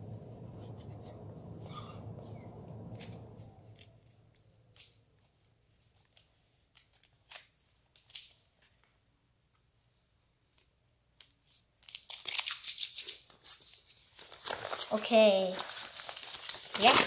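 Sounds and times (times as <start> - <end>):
wrapper crinkling and tearing: 11.8 - 17.0.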